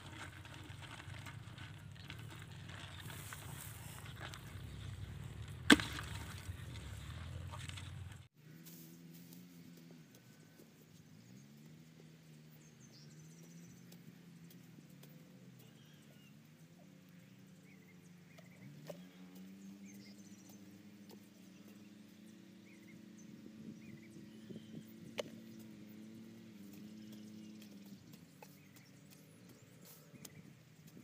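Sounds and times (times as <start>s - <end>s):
spade knocking in soil: 5.6s - 7.9s.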